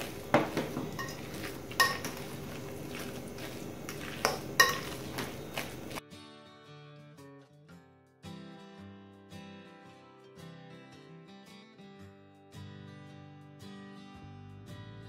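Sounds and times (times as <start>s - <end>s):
fork mashing potatoes in glass bowl: 0.0s - 6.0s
fork clinking against glass: 0.4s - 5.7s
quiet acoustic guitar music: 4.8s - 15.0s.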